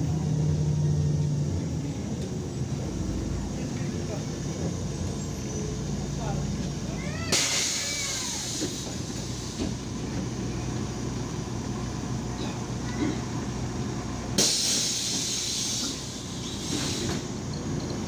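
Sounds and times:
bus diesel engine droning: 0.0s - 18.0s
compressed air hiss: 14.4s - 17.4s.

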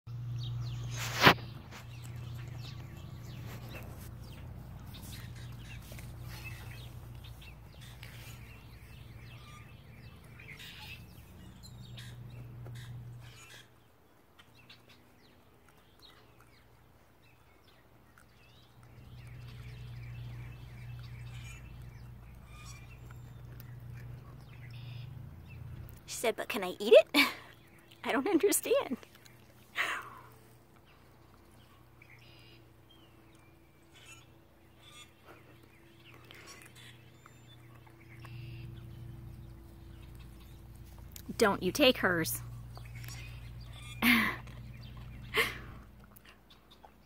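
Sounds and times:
songbirds chirping: 0.1s - 47.0s
steady low hum: 15.4s - 26.6s, 27.2s - 47.0s.

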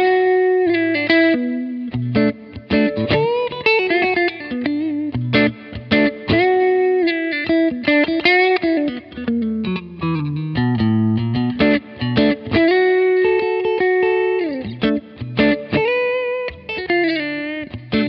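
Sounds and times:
electric guitar lead with reverb: 0.0s - 18.0s.

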